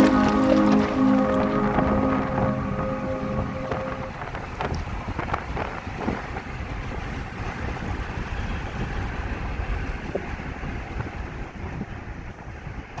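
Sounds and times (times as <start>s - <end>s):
road and engine rumble in car: 4.6s - 12.9s.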